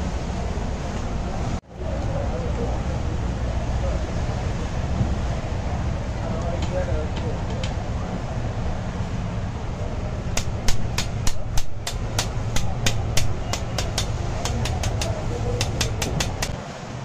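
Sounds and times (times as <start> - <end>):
steady low hum: 0.0 - 17.0
knife tapping wire grill basket: 10.4 - 16.6.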